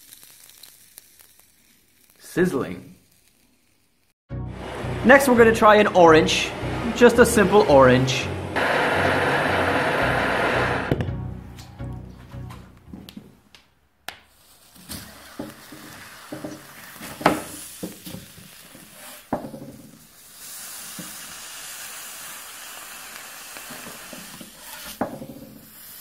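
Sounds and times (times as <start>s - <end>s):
hot knife blade sizzling: 6.0s - 10.9s, 20.0s - 26.0s.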